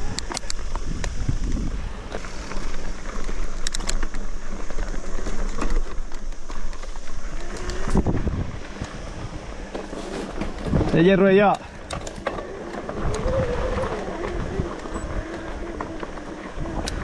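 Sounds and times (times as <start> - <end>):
wind buffeting microphone: 0.0 - 4.4, 5.1 - 9.7, 10.3 - 17.0
bike knocking and rattling: 0.0 - 17.0
tyres crunching over stones: 0.2 - 17.0.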